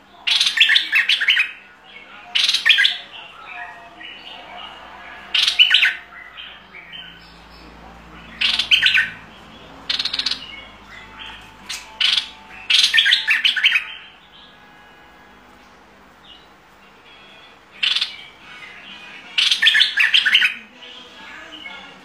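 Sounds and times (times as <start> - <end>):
bird singing chattering notes: 2.3 - 4.5, 5.3 - 14.9, 15.6 - 20.6.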